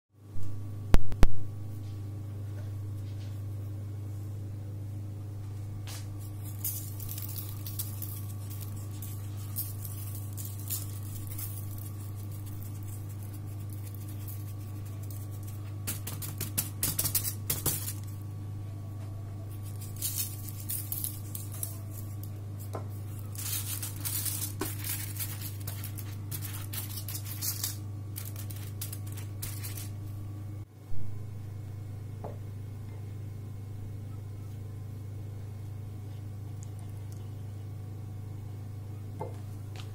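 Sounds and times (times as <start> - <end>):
steady low hum: 0.2 - 39.9
foil crinkling: 6.2 - 18.2, 19.5 - 30.0.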